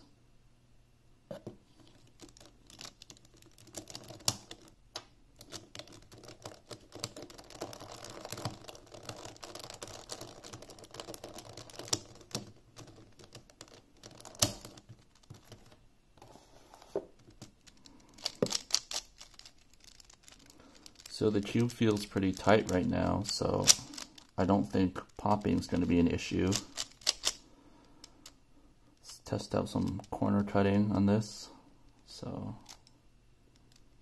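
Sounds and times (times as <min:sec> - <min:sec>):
plastic puzzle cube clicking: 0:05.4 - 0:15.6, 0:17.3 - 0:22.9, 0:23.6 - 0:24.4, 0:26.5 - 0:27.4.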